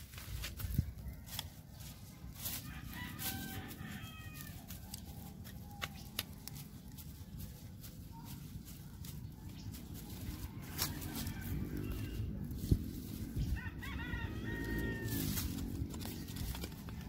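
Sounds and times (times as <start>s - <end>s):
rooster crowing: 2.6s - 4.7s, 10.6s - 12.6s, 13.4s - 15.7s.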